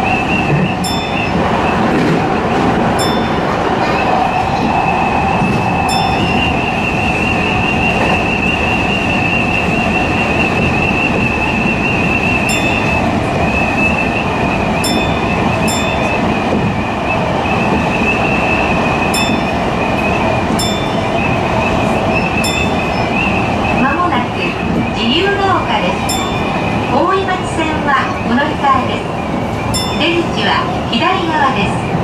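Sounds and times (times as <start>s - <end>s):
train wheels rumbling on rail: 0.0s - 32.0s
high wavering whine: 3.0s - 23.8s.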